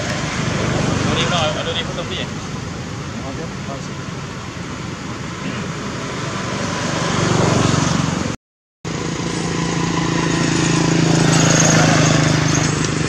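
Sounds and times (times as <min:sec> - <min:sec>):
vehicle engine running: 0:07.3 - 0:13.0.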